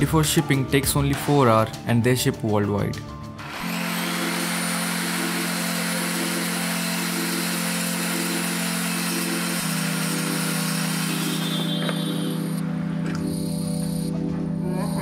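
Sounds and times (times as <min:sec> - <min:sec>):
circular saw cutting wood panel: 0:03.4 - 0:14.2.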